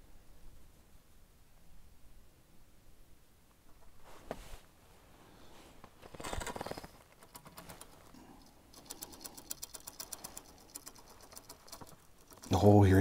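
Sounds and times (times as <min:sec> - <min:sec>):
fabric rustle: 0:03.8 - 0:08.2
fishing reel clicking: 0:07.2 - 0:13.0.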